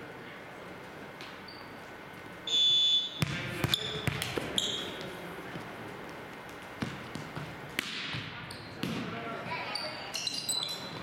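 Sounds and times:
ball bouncing on wooden floor: 0:03.2 - 0:04.6, 0:06.5 - 0:09.0.

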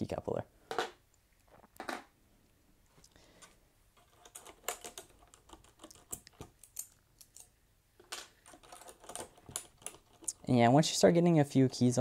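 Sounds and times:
plastic keycaps clicking: 0:04.0 - 0:07.5, 0:08.4 - 0:10.4.

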